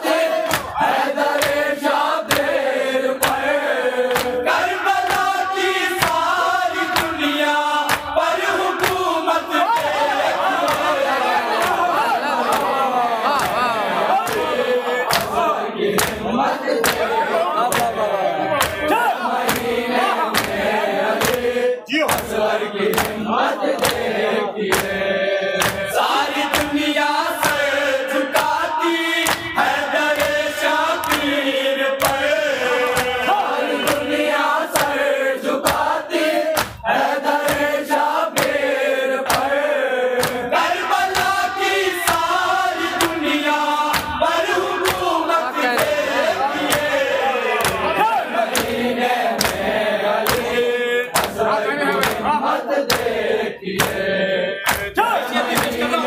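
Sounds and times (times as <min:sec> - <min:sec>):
men chanting through loudspeakers: 0:00.0 - 0:56.0
hands striking chests: 0:18.6 - 0:18.9, 0:25.6 - 0:25.9, 0:36.6 - 0:36.8, 0:46.6 - 0:48.8, 0:50.2 - 0:50.6, 0:51.2 - 0:51.4.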